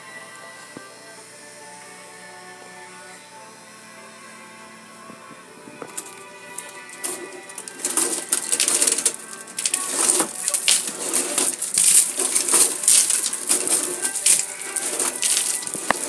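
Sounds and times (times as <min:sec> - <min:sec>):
car wash strands slapping car: 0:07.7 - 0:16.0.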